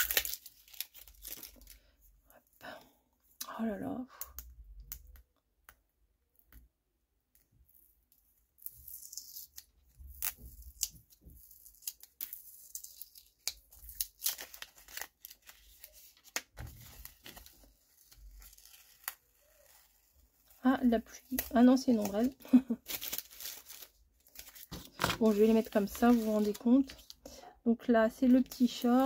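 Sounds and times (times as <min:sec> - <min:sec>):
paper stickers peeling and tearing: 0:00.0 - 0:01.6, 0:08.6 - 0:20.5, 0:21.2 - 0:27.1.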